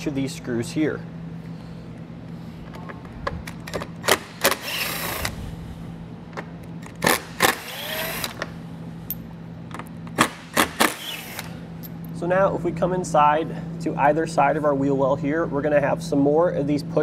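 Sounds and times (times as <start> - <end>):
cordless driver running: 4.0 - 5.4, 6.9 - 8.5.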